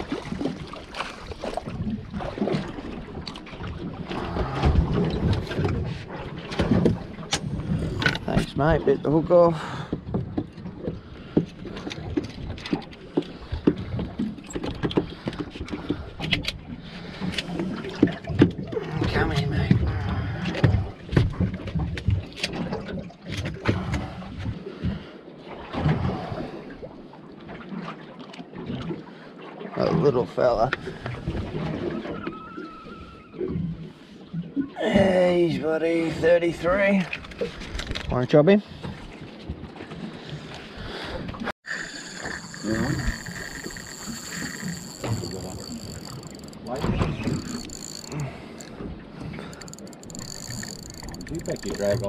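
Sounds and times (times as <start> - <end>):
water slapping against hull: 0.0 - 41.5, 42.2 - 52.0
knocks and clicks: 43.6 - 48.8, 49.6 - 52.0.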